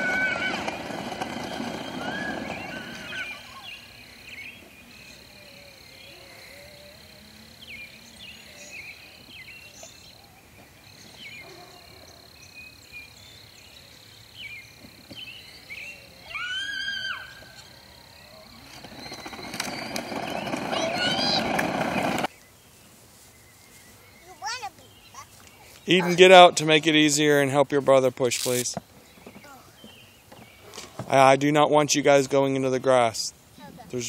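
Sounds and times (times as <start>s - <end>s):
bird drawn-out cry: 0.0s - 4.0s
birds chirping: 0.0s - 34.0s.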